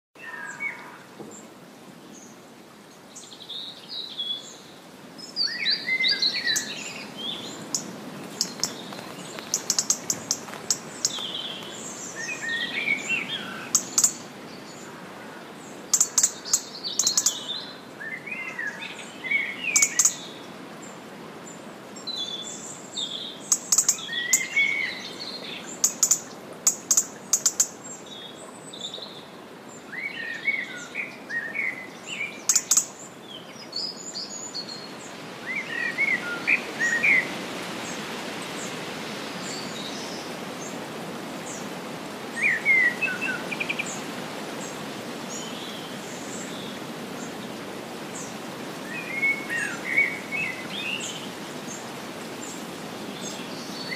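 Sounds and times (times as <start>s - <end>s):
low background hiss: 0.2s - 53.9s
birds chirping and trilling: 3.2s - 20.4s, 22.0s - 29.2s, 48.2s - 51.8s
sharp bird clicking notes: 7.8s - 11.8s.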